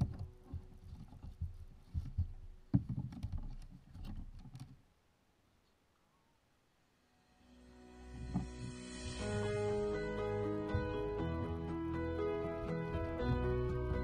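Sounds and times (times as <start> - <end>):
fishing tackle knocks and rubbing: 0.0 - 4.8, 8.2 - 8.7.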